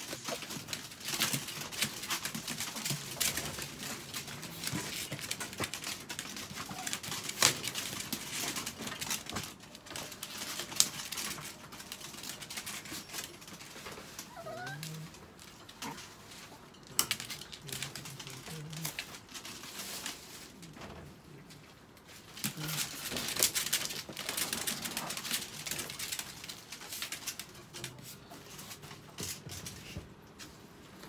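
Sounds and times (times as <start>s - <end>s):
plastic tarp rustling underfoot: 0.0s - 21.2s, 22.0s - 31.0s
wire crates clicking and rattling: 0.0s - 30.4s
small dog whining: 6.6s - 7.1s, 14.1s - 15.2s.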